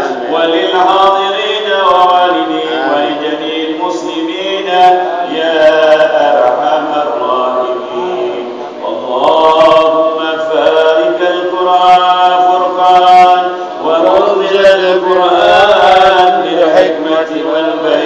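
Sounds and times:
man chanting melodically: 0.0s - 18.0s.

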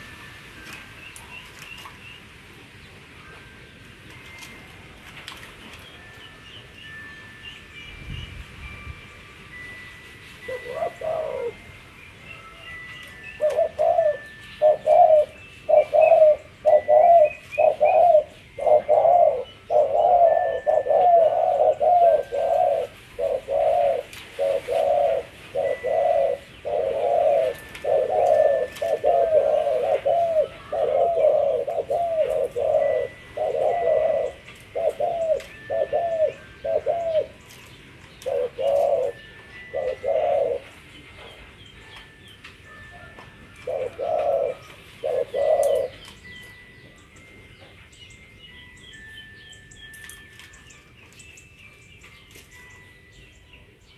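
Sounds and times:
dove cooing: 10.4s - 40.8s, 43.0s - 46.6s.

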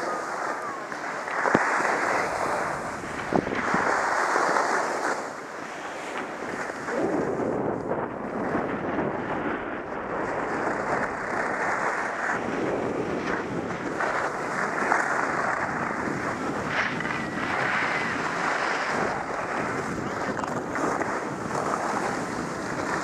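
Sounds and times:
skis hissing on snow: 0.0s - 7.3s
wind rushing over microphone: 0.0s - 23.0s.

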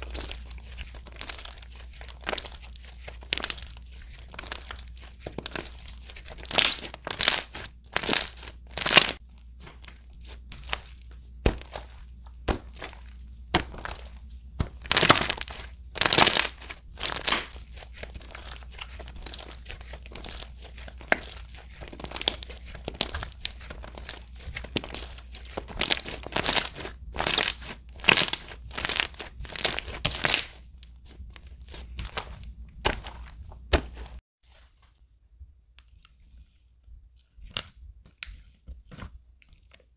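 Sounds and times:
slime crackling as it is stretched: 0.0s - 9.2s, 14.8s - 30.6s.

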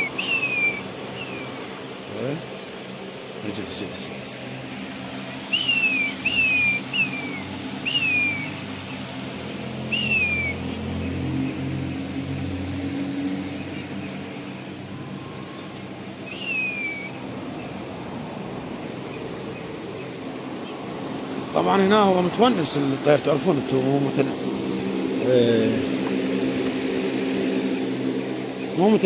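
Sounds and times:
quail descending whistles: 0.0s - 1.5s, 5.4s - 8.6s, 9.9s - 10.7s, 15.3s - 17.2s
small birds chirping faintly: 0.0s - 29.0s.

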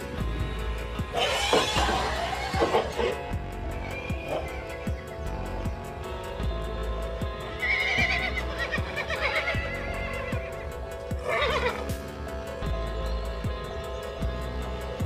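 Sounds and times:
background music with steady beat: 0.0s - 15.0s
horse whinnying: 1.1s - 5.0s, 7.5s - 11.9s.

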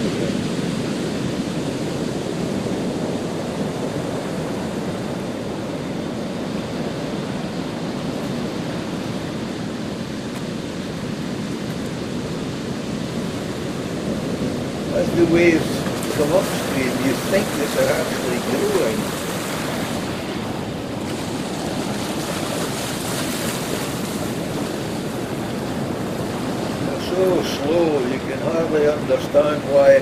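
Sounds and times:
sea waves rushing: 0.0s - 30.0s.

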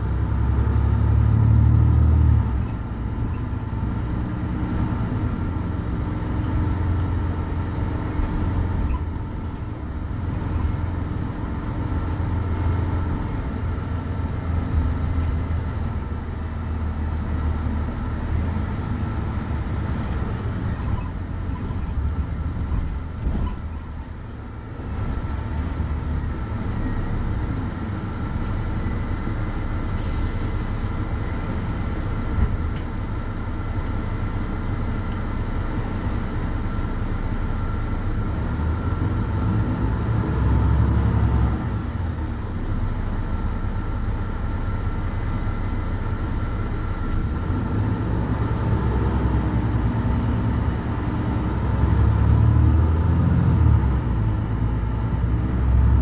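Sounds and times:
diesel bus engine idling: 0.0s - 56.0s.

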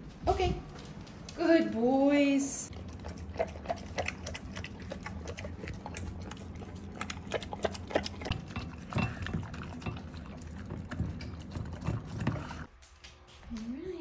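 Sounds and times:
dog chomping wet food: 2.7s - 12.7s.

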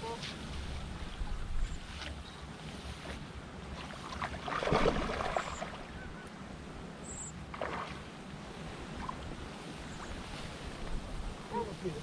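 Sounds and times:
fish splashing at surface: 4.1s - 5.8s.

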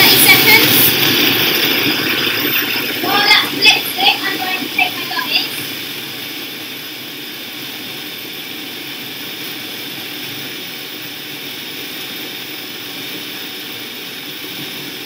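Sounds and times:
food processor whirring: 0.0s - 4.4s.

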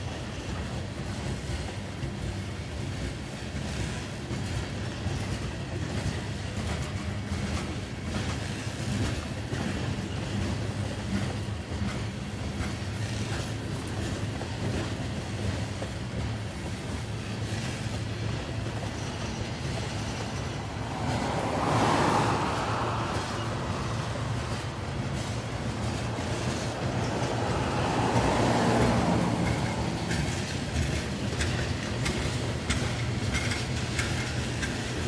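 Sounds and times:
train wheels rumbling on rail: 0.0s - 35.0s
faint clicks of wheels: 5.2s - 35.0s
rushing noise: 17.8s - 32.2s.

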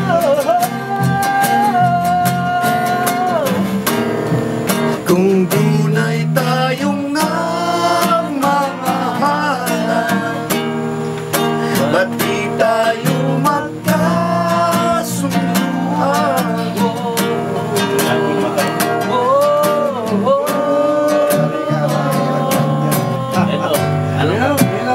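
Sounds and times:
acoustic guitar strumming chords: 0.0s - 24.9s
bending melody line: 0.0s - 24.9s.

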